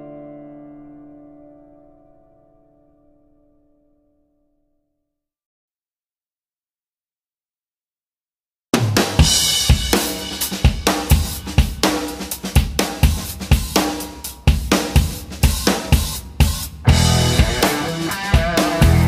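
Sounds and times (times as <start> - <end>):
rock music with drum beat: 8.8 - 19.0.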